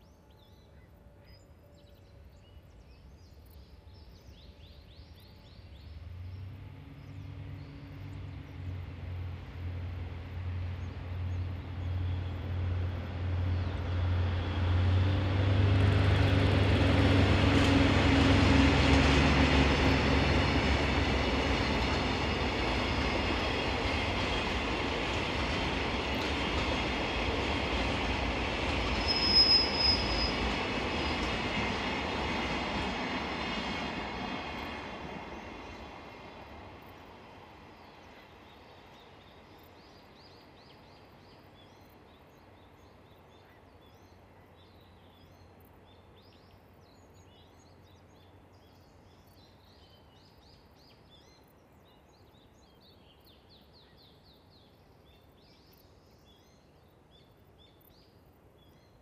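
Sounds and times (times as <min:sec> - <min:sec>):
diesel locomotive accelerating: 0:05.8 - 0:37.6
high wheel squeal: 0:29.0 - 0:30.5.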